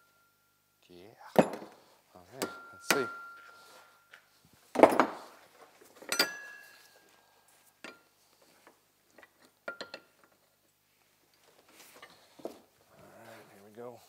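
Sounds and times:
small metal clinks: 0:06.0 - 0:08.2, 0:09.1 - 0:10.8.

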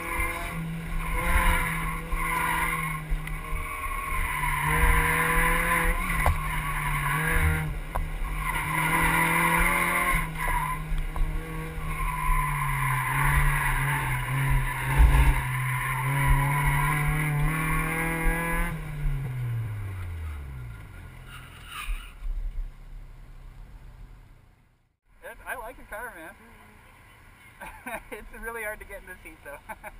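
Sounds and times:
tires squealing: 0:00.0 - 0:22.3
car engine pulling hard: 0:00.0 - 0:24.5.

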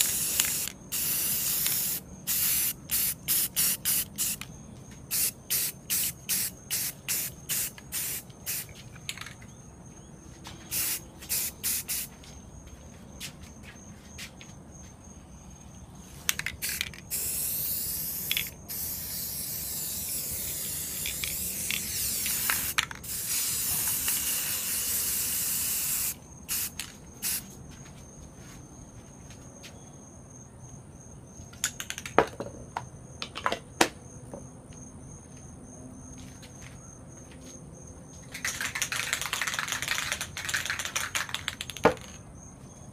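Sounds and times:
spray paint can hissing: 0:00.0 - 0:04.5, 0:05.1 - 0:08.8, 0:10.7 - 0:12.1, 0:16.3 - 0:27.5, 0:38.4 - 0:41.8.

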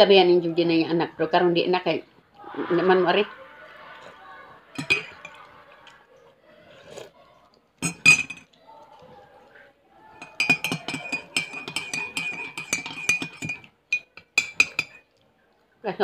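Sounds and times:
teaspoon clinking in ceramic mug: 0:04.8 - 0:05.4, 0:07.8 - 0:08.5, 0:10.2 - 0:15.1.

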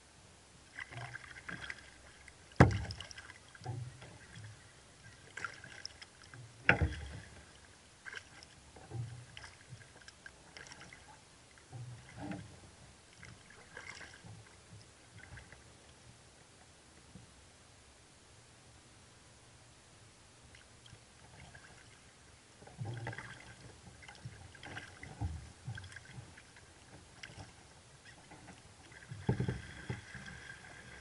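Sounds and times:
paddle splashing in water: 0:00.7 - 0:12.5, 0:13.1 - 0:14.6, 0:22.7 - 0:31.0
low thuds through kayak hull: 0:02.5 - 0:04.6, 0:06.4 - 0:07.5, 0:22.6 - 0:31.0.

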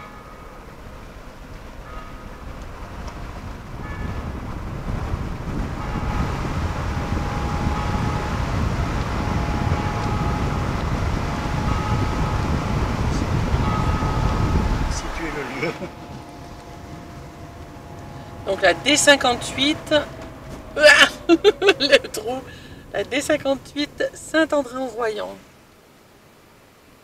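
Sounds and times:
road and wind noise in vehicle: 0:00.0 - 0:27.0
faint high tones: 0:05.6 - 0:25.4.

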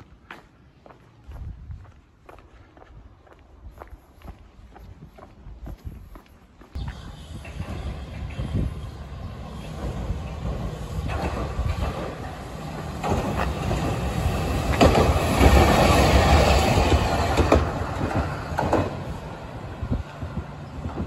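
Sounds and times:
tram wheels rumbling on track: 0:06.7 - 0:21.0
sharp clacks of tram wheels: 0:09.6 - 0:19.3.

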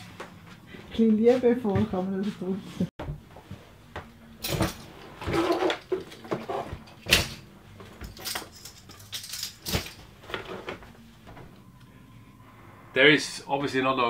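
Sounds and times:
faint steady hum: 0:03.0 - 0:14.0
tools and cables clattering: 0:04.4 - 0:10.9.

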